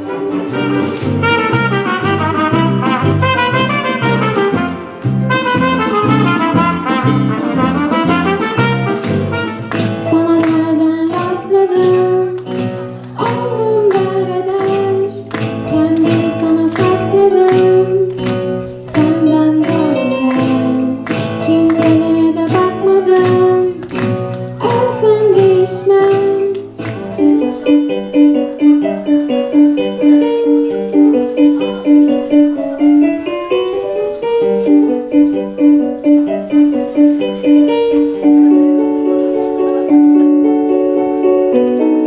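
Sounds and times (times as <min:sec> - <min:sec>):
brass-led dance music: 0:00.0 - 0:10.1
acoustic guitars: 0:00.0 - 0:42.0
piano repeated notes: 0:00.0 - 0:42.0
girl singing into a microphone: 0:10.0 - 0:18.2, 0:18.8 - 0:23.8, 0:24.6 - 0:27.9.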